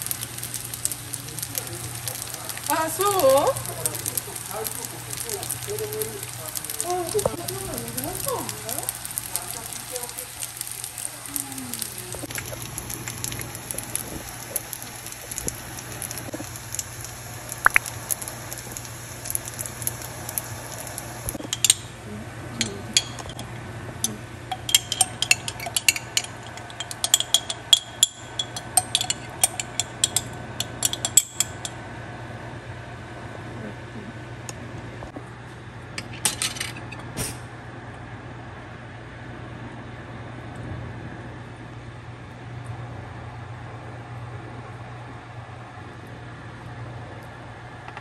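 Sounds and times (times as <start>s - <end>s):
food sizzling in a frying pan: 0.0s - 31.9s
utensil clinking and scraping pan: 21.4s - 21.9s, 22.6s - 31.7s.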